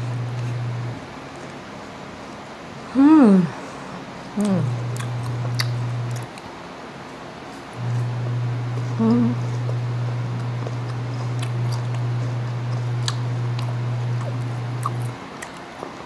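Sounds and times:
chewing crisp mango: 0.0s - 1.5s, 4.4s - 6.6s, 7.5s - 16.0s
steady low hum: 0.0s - 16.0s.

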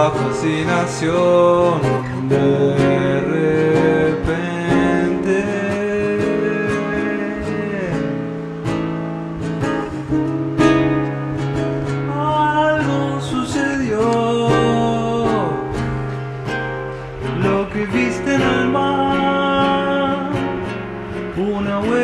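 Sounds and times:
man singing: 0.0s - 8.4s, 12.1s - 16.0s, 17.2s - 22.0s
classical guitar chords: 0.0s - 22.0s.

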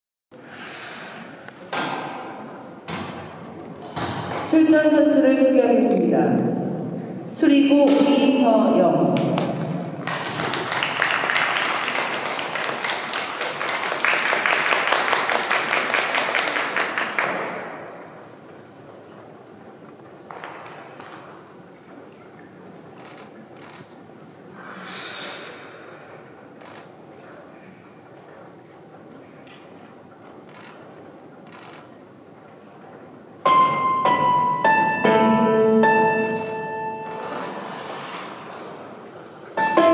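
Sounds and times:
crowd applauding: 9.4s - 17.8s
piano chords over speakers: 33.4s - 37.7s, 39.6s - 39.9s.

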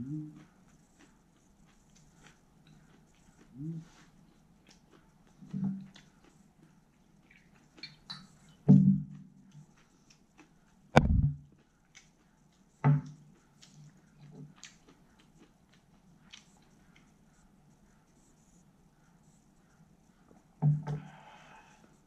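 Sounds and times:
chewing clicks and smacks: 0.0s - 17.4s.

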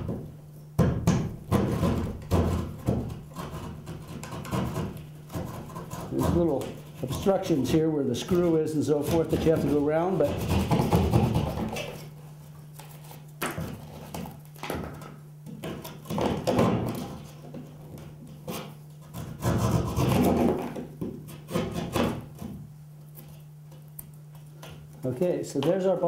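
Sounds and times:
steady low hum: 0.0s - 26.0s
knife cutting drywall: 1.5s - 7.7s, 8.3s - 12.1s, 15.6s - 22.6s.

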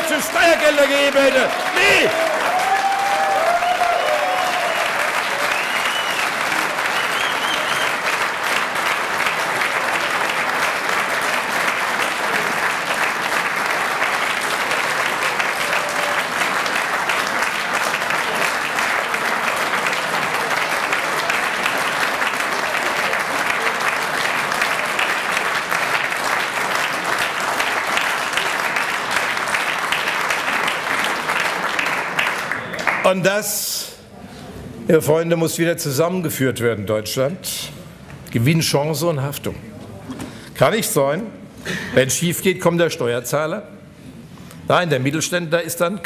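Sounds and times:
large audience applauding: 0.0s - 33.4s.

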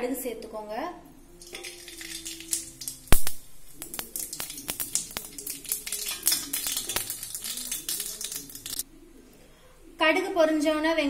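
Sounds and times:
seeds popping in hot oil: 1.4s - 8.8s.

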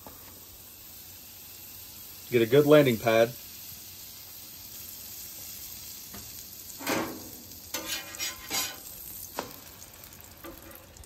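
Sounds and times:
bread sizzling on griddle: 0.0s - 11.0s
spatula scraping griddle: 6.8s - 9.6s, 10.4s - 11.0s.

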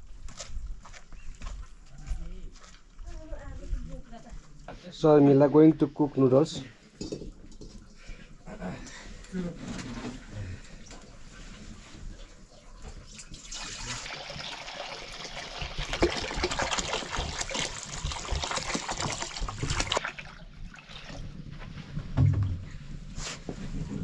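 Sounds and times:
water pouring into metal wok: 13.0s - 21.3s
dull thump: 22.2s - 22.8s.

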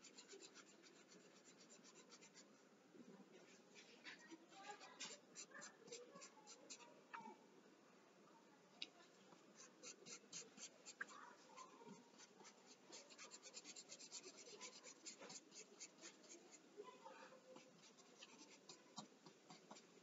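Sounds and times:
pencil scratching on paper: 0.0s - 2.5s, 4.7s - 6.9s, 9.6s - 20.0s.

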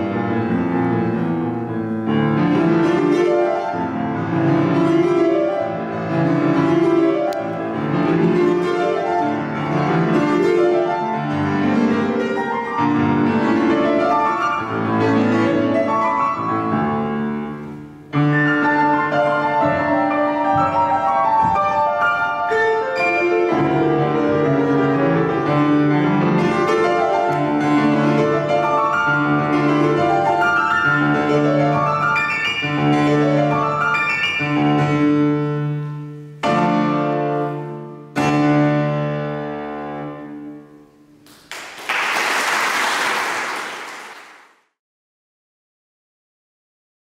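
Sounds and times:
solo piano piece: 0.0s - 41.5s
audience applause: 41.3s - 44.6s.

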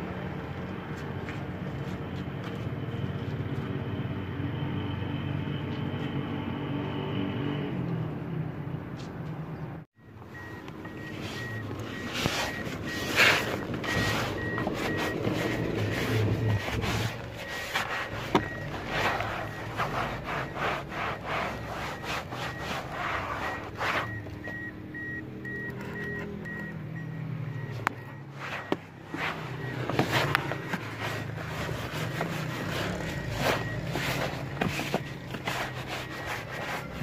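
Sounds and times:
rapid electronic beeps: 10.0s - 37.0s
hand scrubbing fabric upholstery: 10.4s - 24.7s, 28.3s - 37.0s.

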